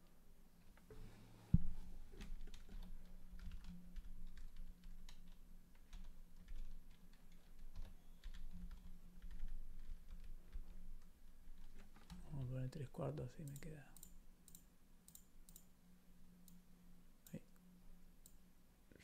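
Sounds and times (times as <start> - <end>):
computer keyboard typing: 2.2 - 10.8.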